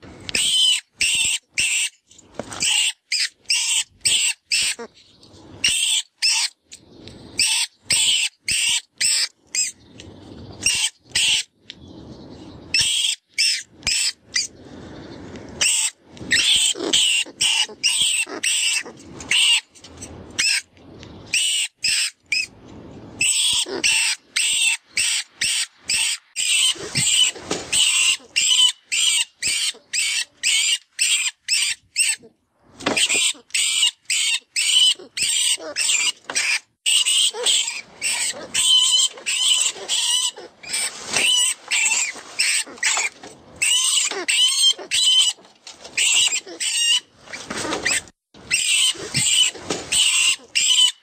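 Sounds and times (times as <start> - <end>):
rat distress squeaks: 2.6 - 4.9, 15.6 - 19.6, 33.0 - 51.0.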